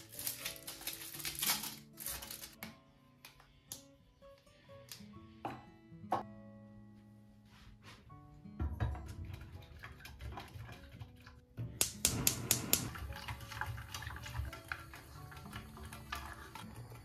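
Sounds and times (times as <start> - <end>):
whisk stirring in saucepan: 9.2 - 11.4, 12.9 - 17.0
gas hob igniter clicking: 11.8 - 13.0.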